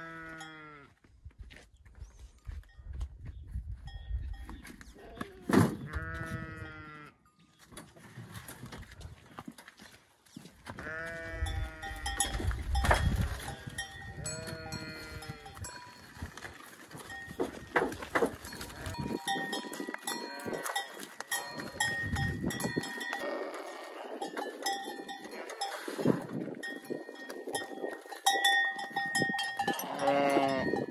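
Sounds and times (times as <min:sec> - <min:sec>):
farm animal calling: 0:10.7 - 0:26.4, 0:27.3 - 0:30.9
metallic clinks and knocks: 0:11.7 - 0:30.9.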